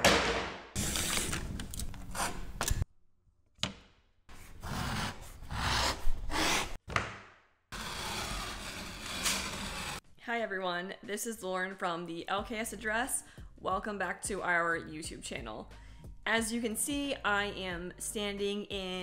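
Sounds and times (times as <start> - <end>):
utility knife cutting drywall: 7.7 - 10.0.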